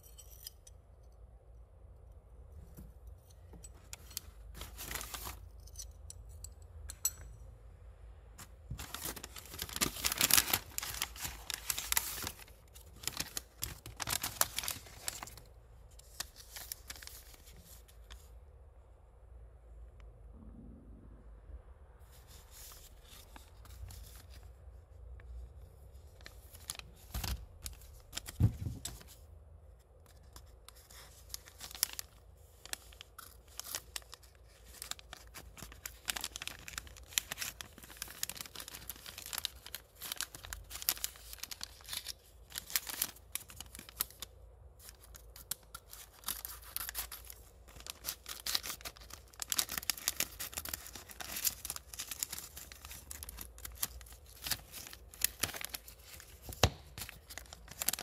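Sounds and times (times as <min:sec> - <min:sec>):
paper packets crinkling: 0:03.8 - 0:05.6, 0:08.4 - 0:18.3, 0:26.0 - 0:29.2, 0:30.4 - 0:58.0.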